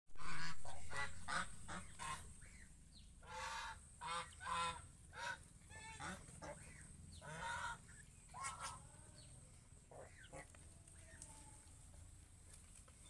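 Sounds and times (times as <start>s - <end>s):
geese honking: 0.2s - 9.0s.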